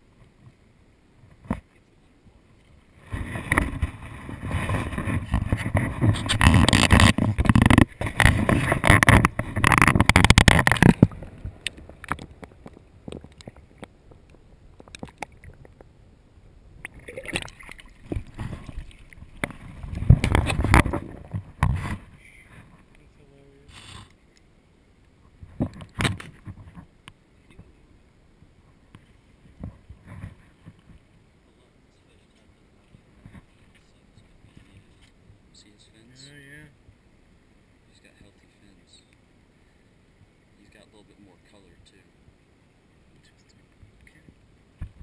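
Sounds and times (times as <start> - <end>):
creek water splashing and gurgling: 1.7 - 16.0, 16.7 - 22.2.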